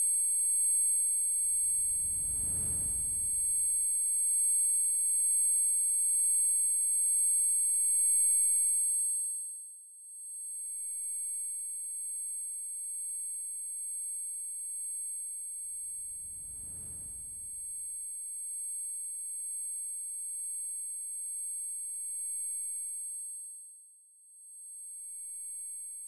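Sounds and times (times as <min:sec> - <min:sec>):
low rumble: 0:01.4 - 0:03.7, 0:15.7 - 0:17.9.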